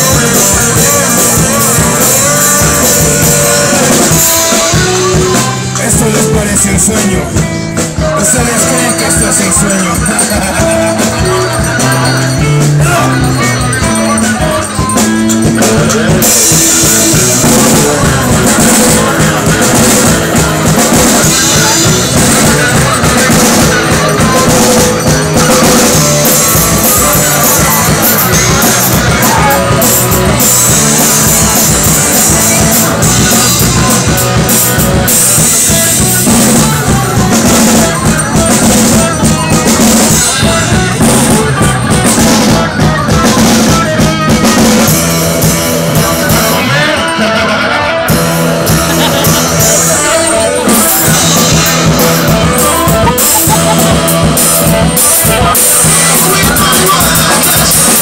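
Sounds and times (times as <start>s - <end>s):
drum kit with cymbals: 0.0s - 58.0s
guitars: 0.0s - 58.0s
rock band playing loudly: 0.0s - 58.0s.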